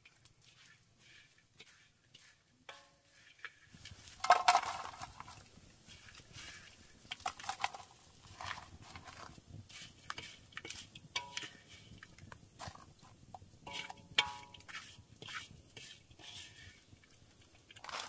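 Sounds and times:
chopsticks stirring and scraping wok: 0.0s - 18.0s
coconut strips tipped into wok: 4.1s - 5.4s.

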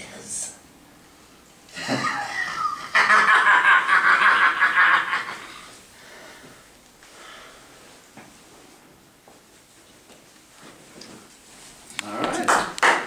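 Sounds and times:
man laughing: 1.7s - 5.7s.

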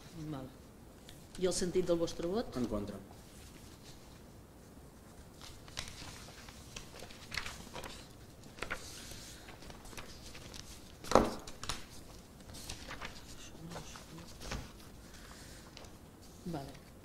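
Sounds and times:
paper being shuffled: 4.9s - 17.0s.

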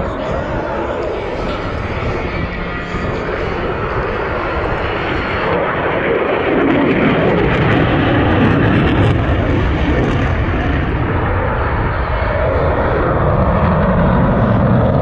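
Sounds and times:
aircraft engine overhead: 0.0s - 15.0s.

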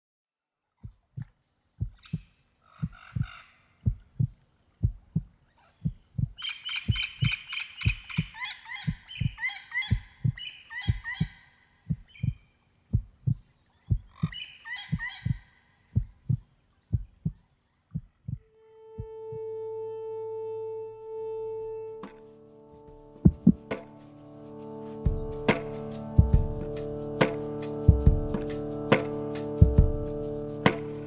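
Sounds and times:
heartbeat thumps: 0.8s - 15.4s, 16.0s - 19.4s, 23.1s - 23.9s, 25.0s - 30.8s
bird chirping: 1.7s - 19.5s.

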